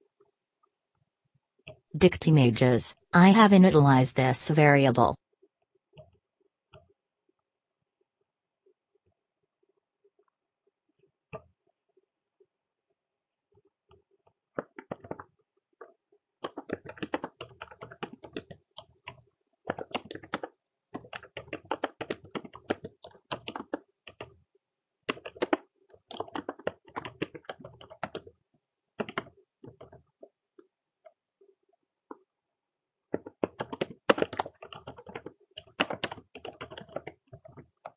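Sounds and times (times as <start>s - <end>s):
typing on computer keyboard: 14.6s - 24.4s, 25.0s - 28.4s, 29.0s - 30.3s, 33.1s - 37.9s.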